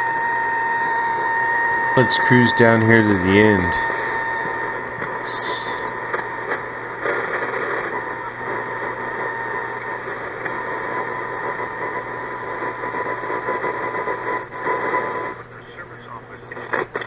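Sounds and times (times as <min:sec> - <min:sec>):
whistling tones between stations: 0:00.0 - 0:11.8
radio static: 0:00.4 - 0:17.0.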